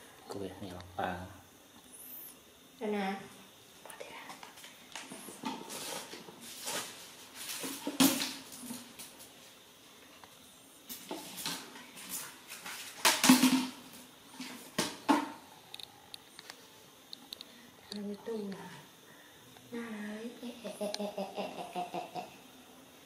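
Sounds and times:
plastic basket knocking on tiles: 13.0s - 13.8s, 14.7s - 15.4s.

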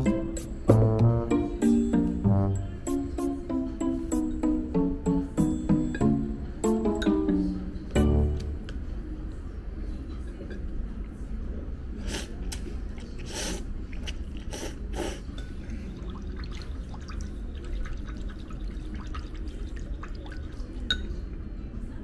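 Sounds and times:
person slurping noodles: 13.1s - 15.3s.

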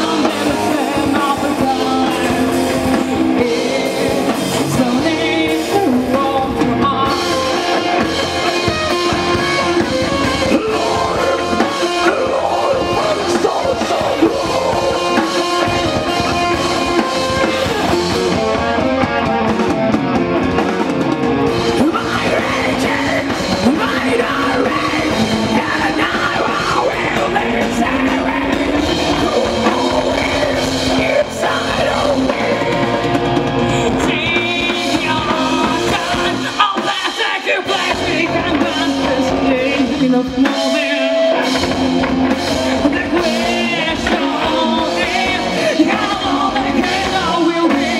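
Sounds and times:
female lead vocals: 0.0s - 8.1s, 21.8s - 41.7s, 42.5s - 47.9s
bass guitar: 0.0s - 47.9s
distorted electric guitar: 0.0s - 47.9s
drum kit: 0.0s - 47.9s.

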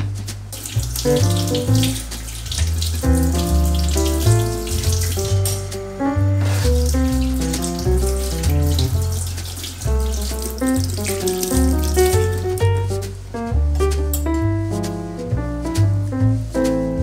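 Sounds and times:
tap running into sink: 0.0s - 5.8s, 6.4s - 12.9s
instrumental music with bass and plucked notes: 0.0s - 17.0s.

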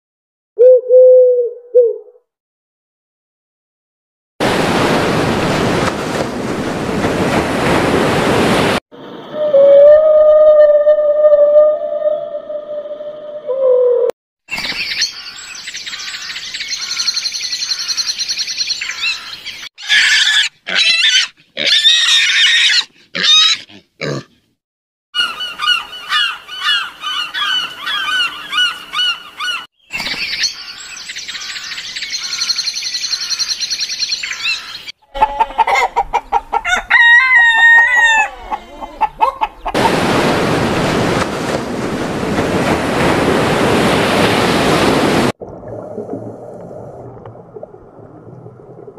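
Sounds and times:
waves breaking on a beach: 4.4s - 8.8s, 39.8s - 45.4s
birds chirping: 14.5s - 19.7s, 25.2s - 35.2s
birds squawking and honking: 14.6s - 21.3s, 25.2s - 39.7s.

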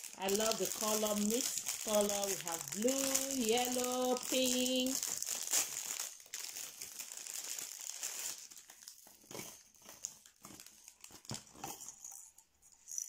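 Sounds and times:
plastic bags crinkling: 0.0s - 13.0s.

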